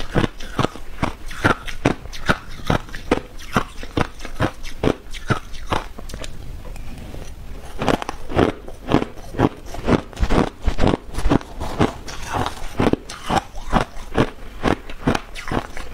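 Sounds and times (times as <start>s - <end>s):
crushed ice crunching in mouth: 7.6s - 15.9s.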